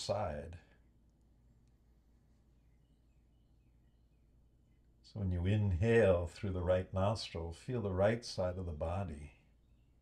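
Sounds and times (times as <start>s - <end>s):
faint high chirps: 0.0s - 5.5s
low steady hum: 0.0s - 10.0s.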